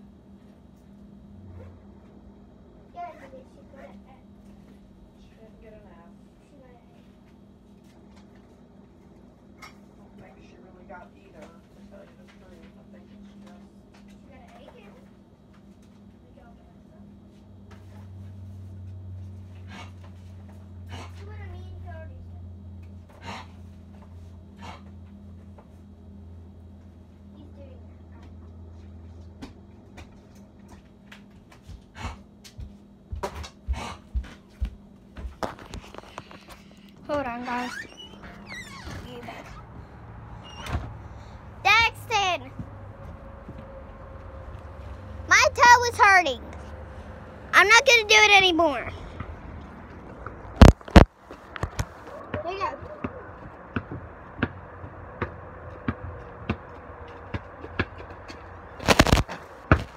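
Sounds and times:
basketball bouncing on concrete: 0:51.8 - 0:59.9.

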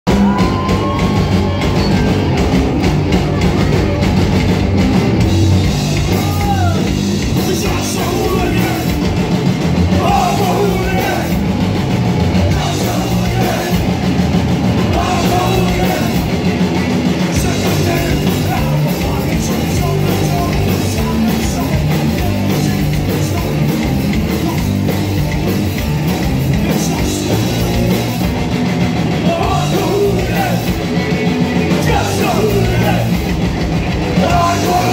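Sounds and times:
bass guitar: 0:00.0 - 0:34.9
drum kit: 0:00.0 - 0:34.9
electric guitar: 0:00.1 - 0:34.9
person singing: 0:09.9 - 0:11.4, 0:12.5 - 0:13.9, 0:14.9 - 0:16.4, 0:17.3 - 0:24.9, 0:29.2 - 0:33.2, 0:34.2 - 0:34.9.

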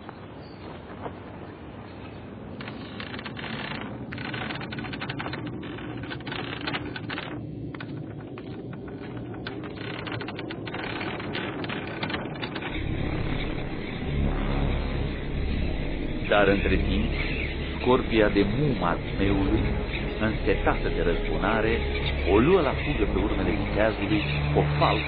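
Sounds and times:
clatter of clicks and taps: 0:02.6 - 0:12.7
low rumble: 0:03.1 - 0:25.0.

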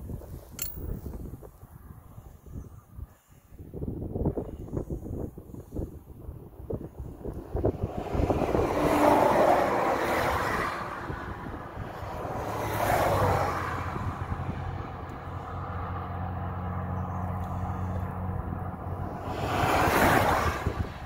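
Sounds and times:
vehicles passing: 0:06.4 - 0:21.0
low engine hum: 0:10.6 - 0:21.0.

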